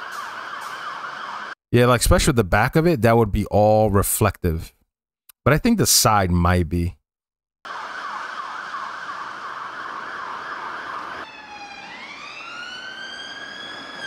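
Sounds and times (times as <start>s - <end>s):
fire engine siren yelping: 0.0s - 1.6s, 7.7s - 14.0s
police siren wailing: 0.0s - 1.6s, 7.7s - 14.0s.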